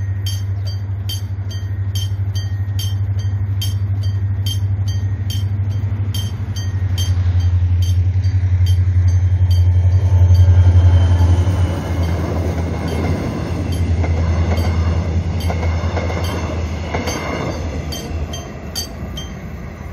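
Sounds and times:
crossing warning bell dinging: 0.0s - 19.9s
locomotive engine drone: 0.0s - 19.9s
train wheels clattering on rails: 0.0s - 19.9s.

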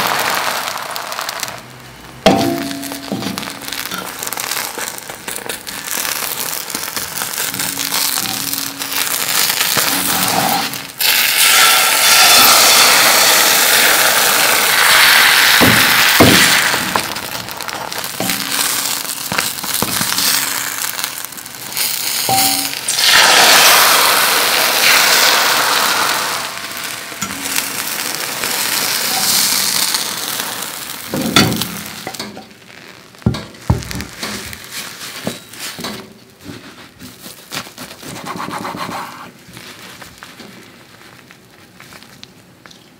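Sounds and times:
egg sizzling in a skillet: 0.0s - 1.6s, 2.2s - 36.1s
utensils scraping and tapping pan: 38.0s - 39.3s.

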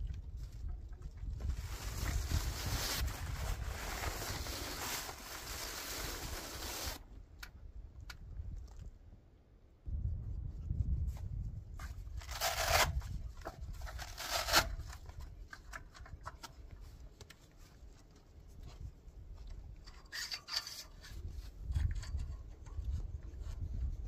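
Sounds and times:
rubbing and scraping strokes: 1.5s - 7.0s, 11.8s - 16.6s, 19.8s - 24.0s.

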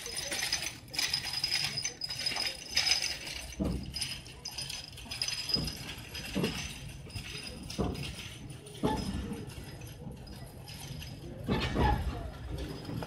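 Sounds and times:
train carriage rattling: 0.0s - 13.0s.

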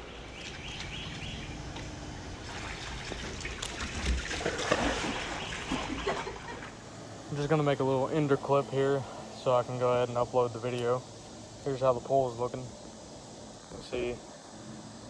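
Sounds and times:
water splashing and trickling: 0.0s - 7.7s.

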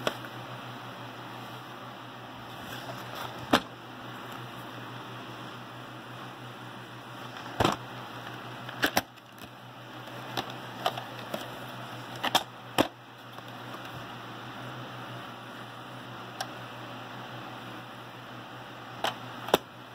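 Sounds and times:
low hum and hiss: 0.0s - 19.9s
plastic case clicks and snaps: 8.7s - 9.5s, 12.2s - 13.6s, 19.0s - 19.7s.

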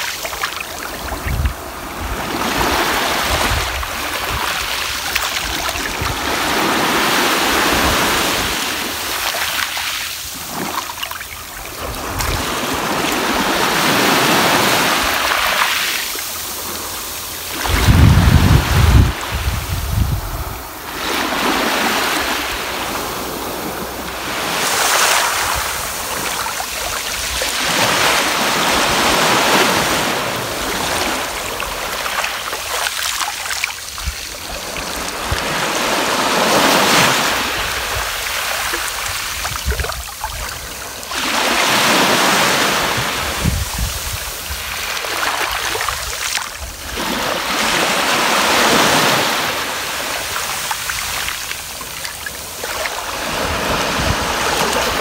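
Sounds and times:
waves washing over pebble beach: 0.0s - 55.0s.

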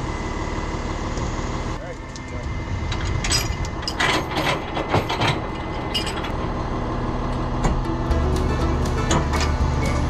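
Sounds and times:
truck engine humming: 0.0s - 10.0s
tow gear clanking and rattling: 2.9s - 6.6s, 7.6s - 10.0s.

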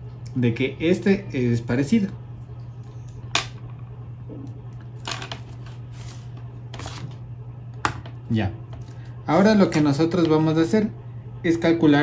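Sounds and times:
steady low hum: 0.0s - 12.0s
paper and plastic rustling: 5.3s - 7.2s.

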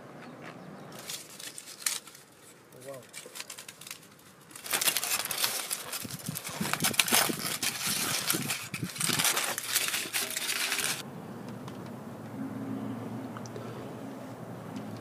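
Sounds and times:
dense crinkling and rustling: 0.9s - 11.0s.

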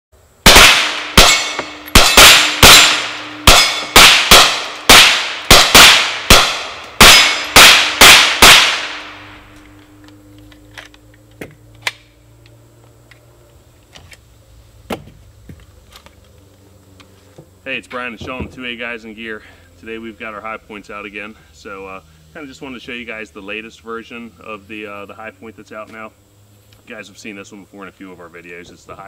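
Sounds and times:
carbines firing rapid shots: 0.4s - 9.0s.

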